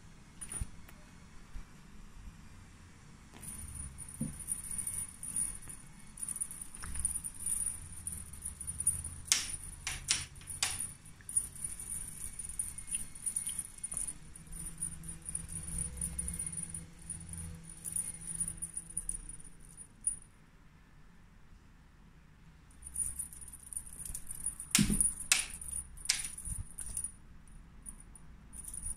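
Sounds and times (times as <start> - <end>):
cat toy jingling: 3.4 - 20.2, 22.8 - 27.1, 27.8 - 28.9.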